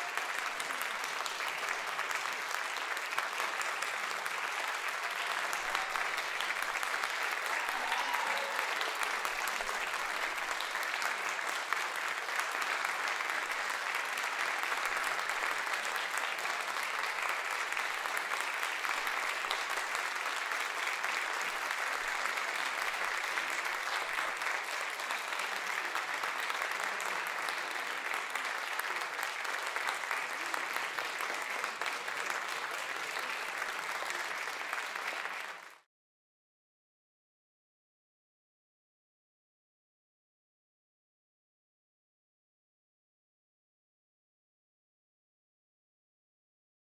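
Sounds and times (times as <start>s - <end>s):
audience applauding: 0.0s - 35.9s.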